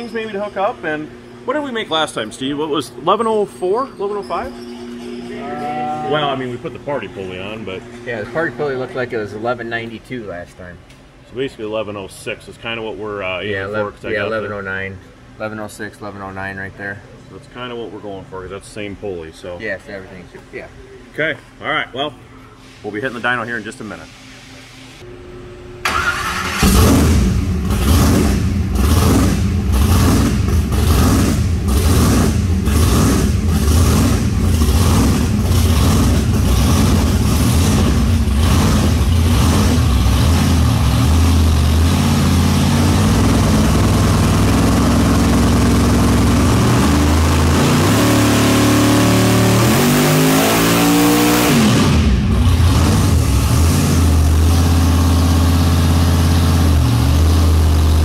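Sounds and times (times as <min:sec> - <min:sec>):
car engine idling and revving: 0:25.8 - 0:58.0.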